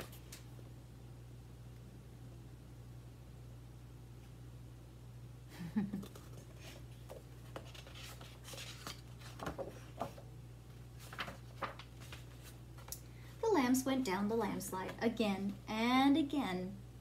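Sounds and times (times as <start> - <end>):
faint low hum: 0.0 - 17.0
book pages rustling: 6.1 - 10.2, 11.0 - 13.0.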